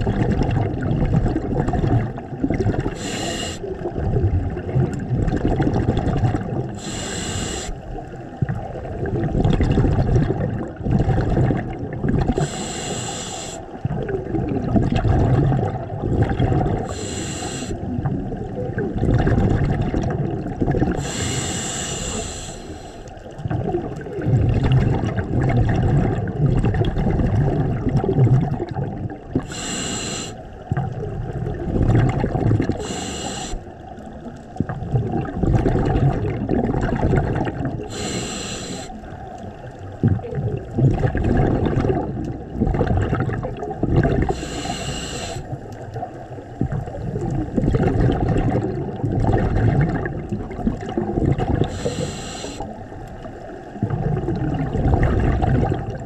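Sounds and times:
bubbling exhaled air: 0:00.0 - 0:56.0
regulator hissing inhales: 0:03.0 - 0:03.7, 0:06.8 - 0:07.8, 0:12.4 - 0:13.7, 0:16.9 - 0:17.8, 0:21.0 - 0:23.2, 0:29.4 - 0:30.5, 0:32.8 - 0:33.7, 0:37.9 - 0:39.0, 0:44.3 - 0:45.5, 0:51.7 - 0:52.7.

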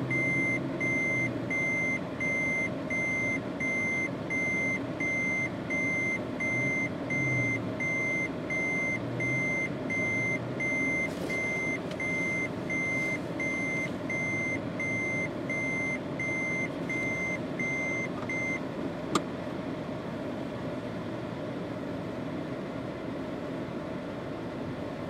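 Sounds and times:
vehicle engine idling: 0:00.0 - 0:25.0
vehicle warning beeper: 0:00.1 - 0:18.6.

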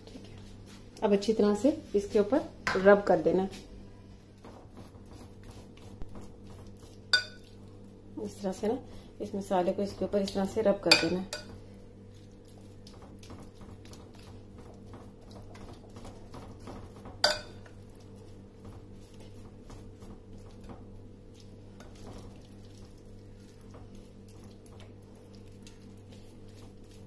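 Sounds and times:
low steady hum: 0:00.0 - 0:27.0
spoon clink on glass: 0:17.2 - 0:17.6.

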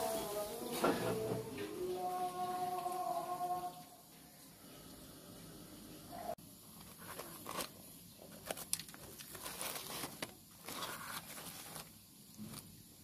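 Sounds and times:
rustling and crinkling: 0:06.6 - 0:12.8.

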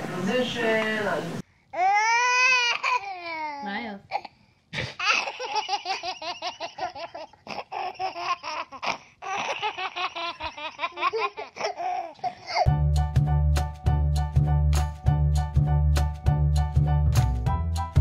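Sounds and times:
baby laughing: 0:04.8 - 0:12.7.

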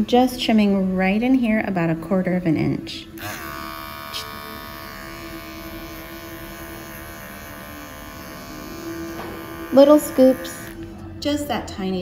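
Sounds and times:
electric clipper buzzing: 0:03.2 - 0:11.0.

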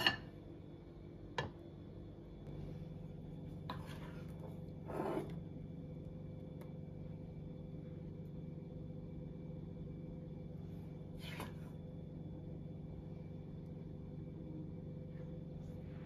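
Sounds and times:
room tone hum: 0:00.0 - 0:16.0
soft scrape: 0:03.6 - 0:05.4.

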